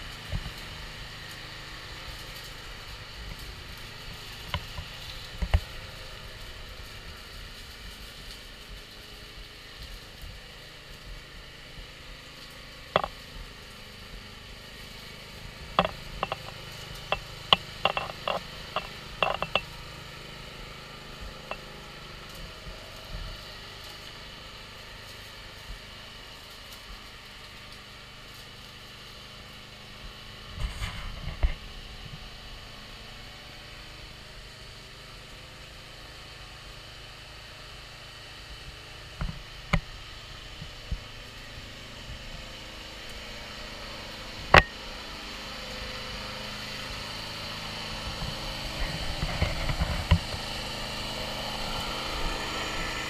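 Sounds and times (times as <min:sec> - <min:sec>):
distant lawn mower engine idling: 0:00.0 - 0:53.0
sharp clicks and knocks: 0:12.9 - 0:13.2, 0:15.7 - 0:19.7, 0:21.4 - 0:21.7, 0:44.5 - 0:44.8, 0:48.8 - 0:50.4.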